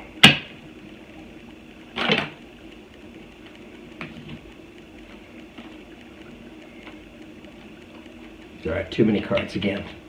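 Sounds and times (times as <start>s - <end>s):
faint tick: 5.9s - 8.5s.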